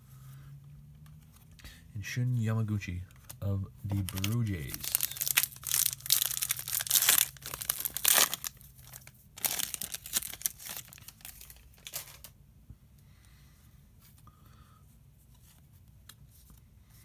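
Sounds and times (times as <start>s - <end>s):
foil wrapper crinkling and tearing: 3.9s - 12.3s.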